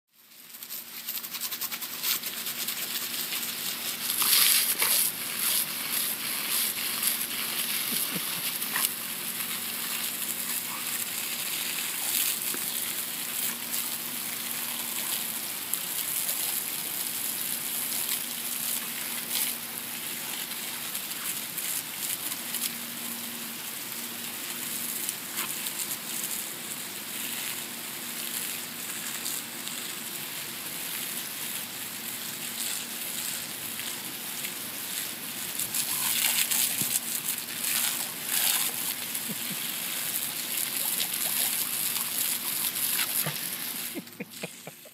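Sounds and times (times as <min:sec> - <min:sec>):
hose spraying onto grass: 0:00.1 - 0:44.9
dog biting at water splashes: 0:01.2 - 0:12.8, 0:35.7 - 0:39.9, 0:40.6 - 0:43.9.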